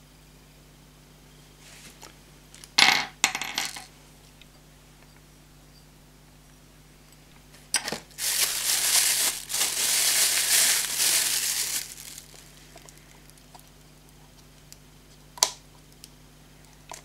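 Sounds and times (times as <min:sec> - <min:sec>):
plastic bag crinkling: 0:07.9 - 0:13.5.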